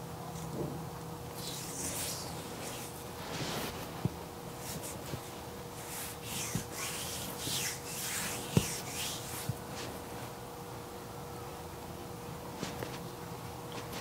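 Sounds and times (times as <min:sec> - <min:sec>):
faint steady hum: 0:00.0 - 0:14.0
hands rubbing a bare foot: 0:01.3 - 0:10.4.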